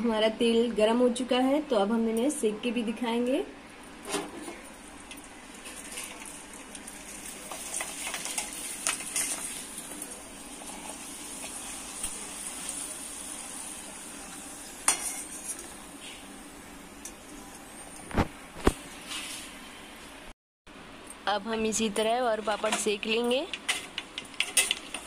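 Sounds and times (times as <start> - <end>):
frying in hot oil sizzling: 4.2 - 17.4, 21.4 - 25.0
spatula scraping and clinking on pan: 14.9 - 15.6, 23.7 - 25.0.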